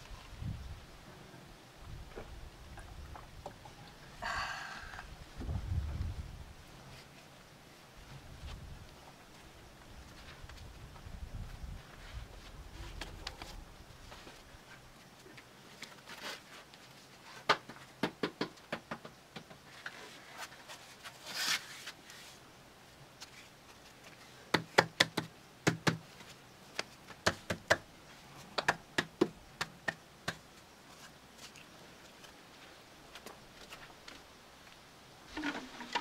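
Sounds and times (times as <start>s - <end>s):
sharp taps and knocks: 24.5s - 26.0s, 28.6s - 30.4s.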